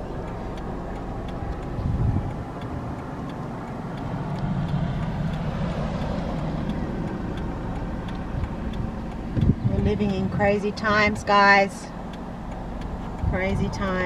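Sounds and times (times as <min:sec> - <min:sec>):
car engine and road rumble: 0:00.0 - 0:14.0
faint regular ticking: 0:00.0 - 0:14.0.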